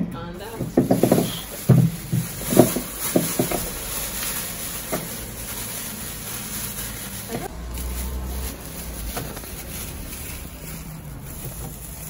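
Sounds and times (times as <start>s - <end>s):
plastic bag rustling: 0.4s - 12.0s
vegetables knocking into plastic bowl: 0.6s - 5.3s.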